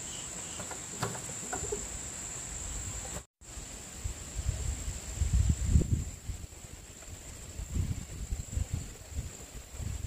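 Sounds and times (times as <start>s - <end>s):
wind gusts on microphone: 2.8s - 10.0s.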